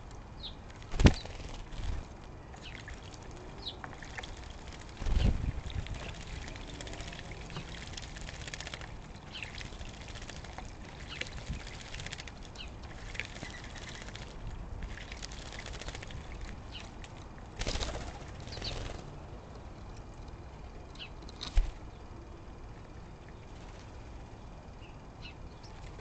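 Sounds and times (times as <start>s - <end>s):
wings fluttering: 0.6s - 19.3s, 21.3s - 22.0s, 23.4s - 24.2s, 25.6s - 26.0s
birds splashing water: 0.7s - 19.2s.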